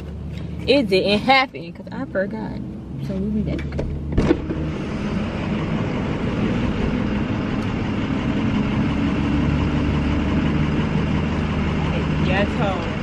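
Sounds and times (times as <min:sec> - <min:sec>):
vehicle engine idling: 0:00.0 - 0:13.0
car door opening: 0:03.5 - 0:04.7.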